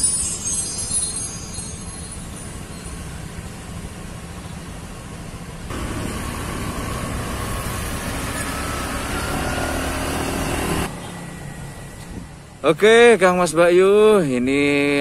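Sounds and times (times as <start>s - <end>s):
road ambience: 0.0s - 15.0s
vehicle engine running: 2.0s - 12.6s.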